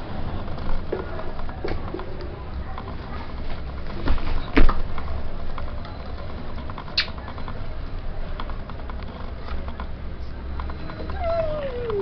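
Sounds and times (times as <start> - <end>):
child's voice gliding down: 11.2 - 12.0.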